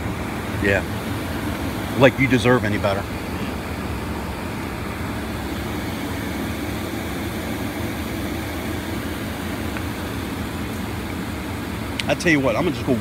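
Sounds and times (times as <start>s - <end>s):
low mechanical motor hum: 0.0s - 13.0s.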